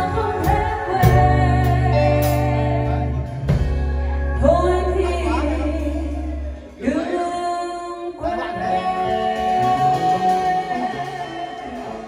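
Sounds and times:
live band with guitars and keyboard: 0:00.0 - 0:12.0
person singing long notes: 0:00.0 - 0:12.0.

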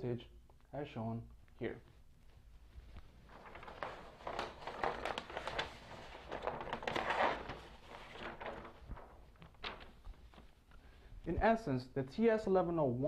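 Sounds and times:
paper sheet rustling and crinkling: 0:02.3 - 0:11.0.

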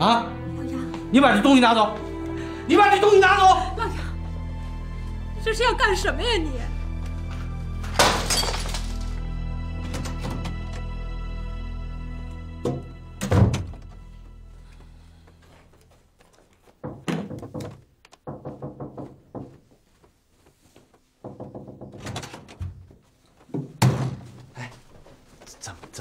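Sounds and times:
music: 0:00.0 - 0:16.2.

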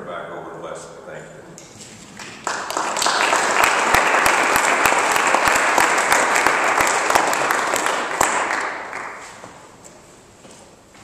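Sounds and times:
audience applauding: 0:02.2 - 0:09.5.

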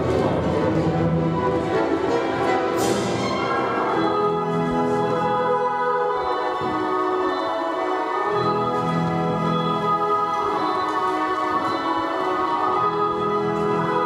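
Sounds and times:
orchestral music: 0:00.0 - 0:14.0.

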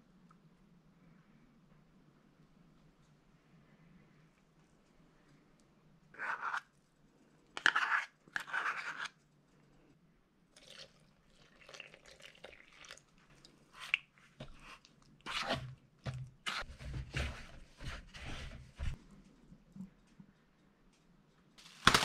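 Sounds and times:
spoon scraping a cup: 0:07.6 - 0:09.1.

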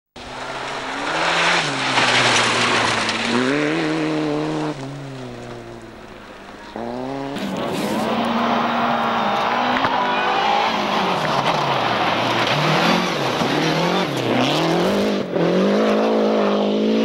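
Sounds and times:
gravel hiss from tyres: 0:00.2 - 0:14.2
rally car engine revving: 0:00.2 - 0:17.0.

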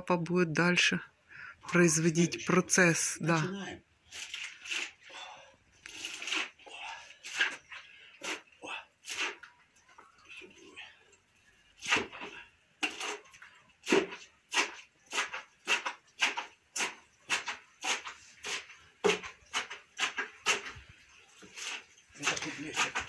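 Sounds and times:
wooden pole knocking mashing grapes: 0:13.8 - 0:23.0.

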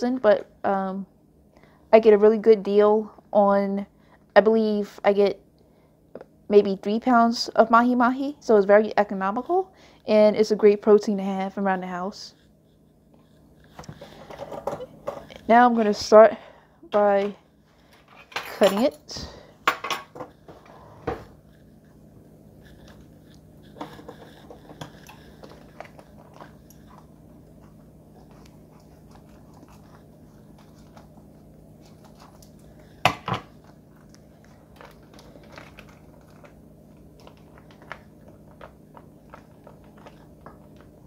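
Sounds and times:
faint low hum: 0:00.0 - 0:41.0
plastic crinkling: 0:22.6 - 0:41.0.

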